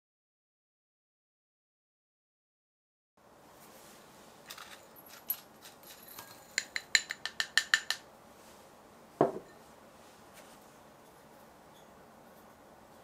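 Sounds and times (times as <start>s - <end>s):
dull knock: 9.2s - 9.4s.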